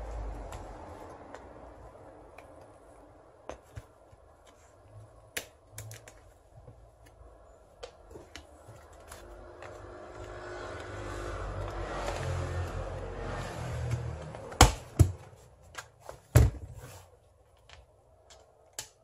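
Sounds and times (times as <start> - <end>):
plastic parts clicking and knocking: 5.3 - 7.2.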